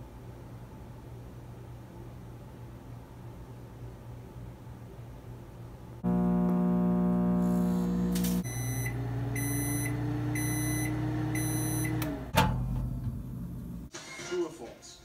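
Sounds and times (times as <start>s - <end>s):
microwave oven humming: 6.0s - 13.9s
short high beeps: 8.4s - 12.0s.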